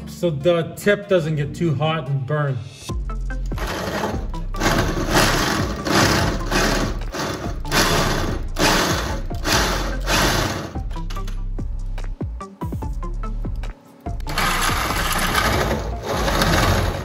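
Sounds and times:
power drill drilling metal: 3.6s - 10.8s, 14.3s - 17.0s.

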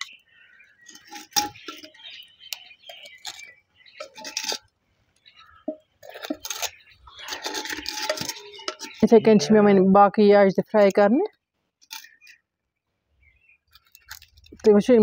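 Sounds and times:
metal tongs clinking on pottery: 0.9s - 2.0s, 5.7s - 9.8s.

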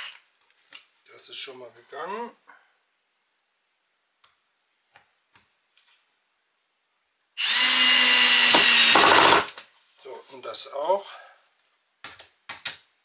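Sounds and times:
cordless drill driving screw: 7.4s - 9.6s.

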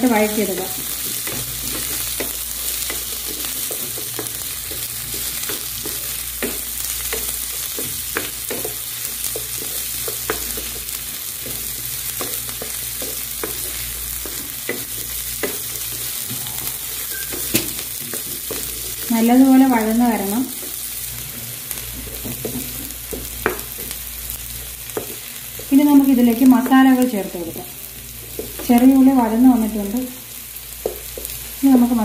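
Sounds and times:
vegetables sizzling in hot oil: 0.0s - 32.0s
spatula tapping and scraping pan: 0.4s - 16.2s, 17.0s - 19.1s, 21.9s - 24.0s, 24.9s - 25.7s.

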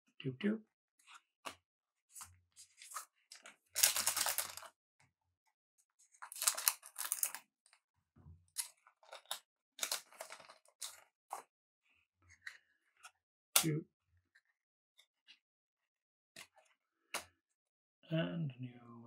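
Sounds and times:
wrapper tearing and crinkling: 3.7s - 4.7s, 6.2s - 7.4s, 8.6s - 11.0s
cards being handled: 6.1s - 7.4s.

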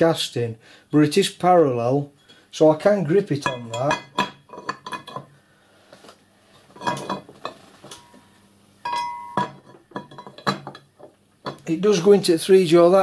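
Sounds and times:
metal clinks and knocks: 3.4s - 5.3s, 6.7s - 11.7s
ringing metal clink: 7.9s - 10.8s.

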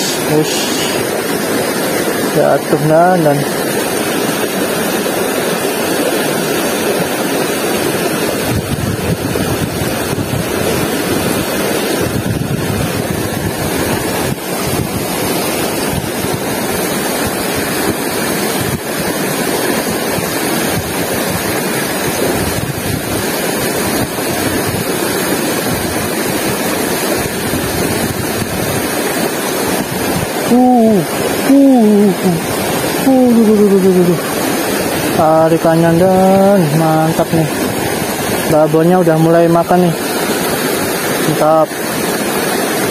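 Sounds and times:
river rushing over rocks: 0.0s - 42.9s
wind buffeting microphone: 7.8s - 39.0s.

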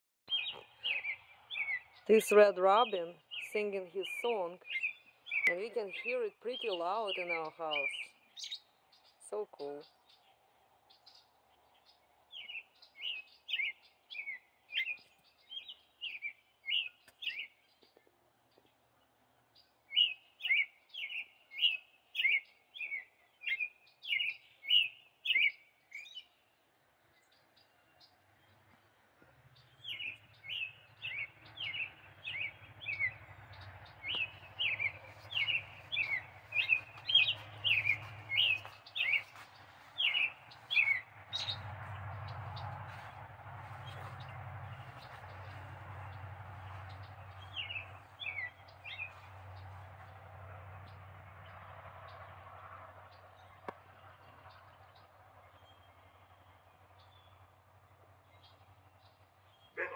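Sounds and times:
low steady rumble: 29.4s - 56.7s.

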